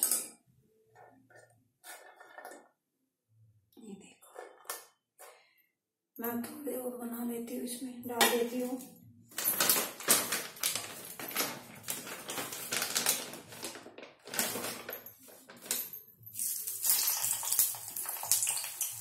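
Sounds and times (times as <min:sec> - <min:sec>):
plastic packet crinkling: 0:09.5 - 0:15.8
fries sizzling in oil: 0:16.4 - 0:19.0.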